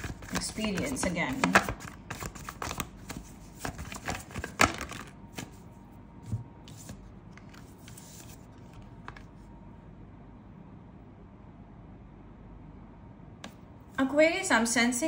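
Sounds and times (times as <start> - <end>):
cards clicking and tapping: 0.0 - 5.6.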